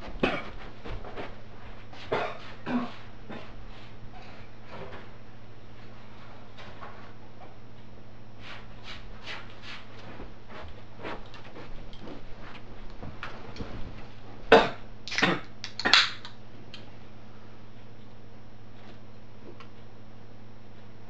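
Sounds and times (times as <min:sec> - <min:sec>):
footsteps crossing room: 0:00.0 - 0:14.6, 0:16.4 - 0:21.0
low electrical hum: 0:00.0 - 0:21.0.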